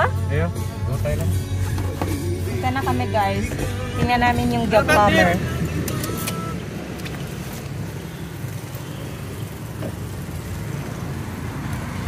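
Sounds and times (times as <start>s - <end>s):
car engine rumble from inside: 0.0s - 11.6s.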